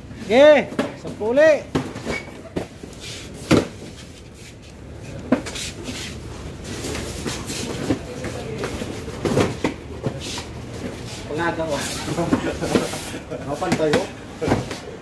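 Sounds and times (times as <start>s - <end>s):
cardboard cartons thudding: 0.6s - 4.1s, 6.8s - 10.2s.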